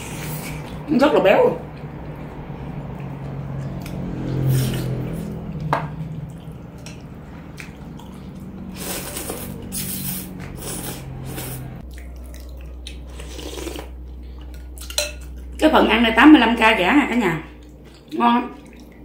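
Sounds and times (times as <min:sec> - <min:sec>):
wet chewing: 0:01.6 - 0:15.6, 0:17.5 - 0:19.0
person slurping noodles: 0:04.3 - 0:05.3, 0:08.7 - 0:11.8, 0:13.1 - 0:14.0.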